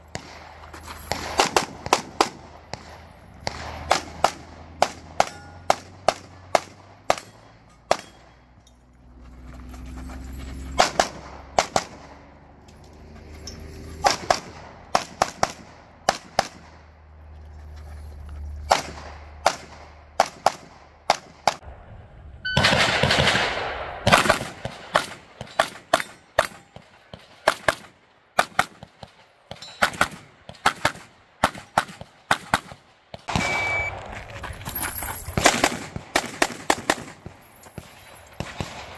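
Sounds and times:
pistol shots: 0.1s - 8.3s, 22.5s - 34.0s, 35.4s - 37.3s.

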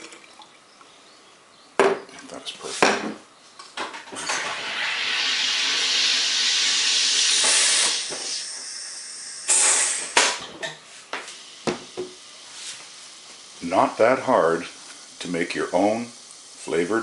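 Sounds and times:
short sharp pressure hiss: 4.2s - 11.8s
gas hissing into a bottle: 4.2s - 17.0s.

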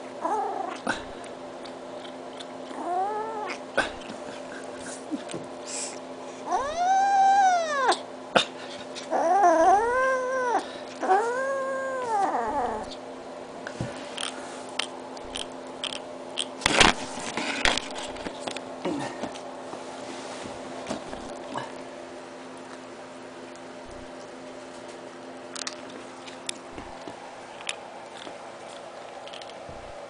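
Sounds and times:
kitten yowling: 2.7s - 3.6s, 6.5s - 8.0s, 9.1s - 13.0s.

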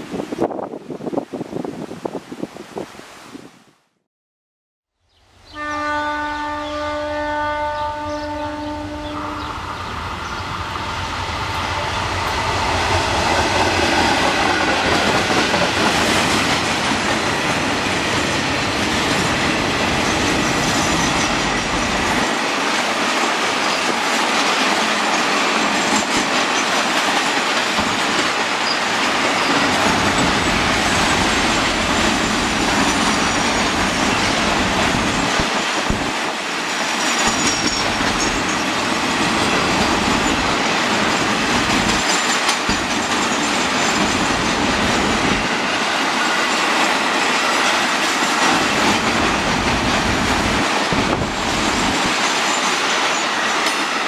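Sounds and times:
diesel locomotive engine rumble: 7.7s - 22.4s
train wheels clickety-clack: 10.2s - 54.0s.

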